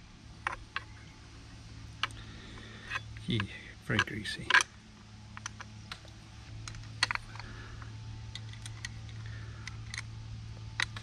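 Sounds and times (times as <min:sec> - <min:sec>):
steady low hum: 0:00.0 - 0:11.0
small metal parts clicking: 0:00.4 - 0:01.0, 0:01.9 - 0:10.1, 0:10.7 - 0:11.0.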